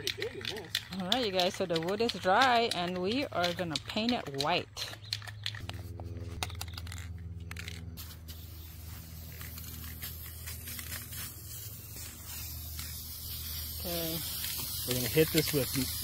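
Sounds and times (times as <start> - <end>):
spray can mixing ball clicking: 0.0 - 5.8, 6.4 - 16.0
spray paint hissing: 0.0 - 16.0
low hum: 4.9 - 13.9.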